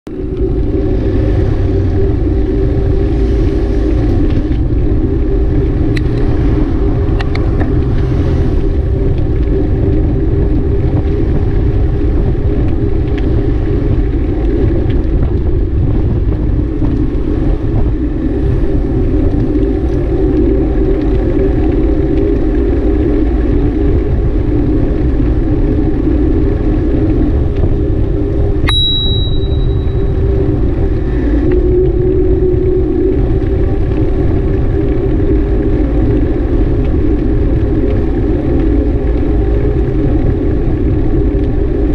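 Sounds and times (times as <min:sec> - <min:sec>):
wind buffeting microphone: 0:00.1 - 0:41.9
high beep: 0:28.7 - 0:30.2.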